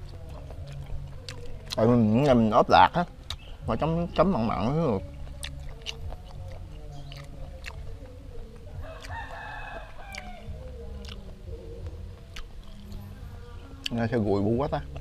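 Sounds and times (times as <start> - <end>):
wet mouth clicks: 0.0 - 2.4, 3.2 - 3.6, 5.1 - 9.2, 10.1 - 10.4, 11.0 - 13.2
man chewing: 0.0 - 14.1
animal calling: 0.0 - 15.0.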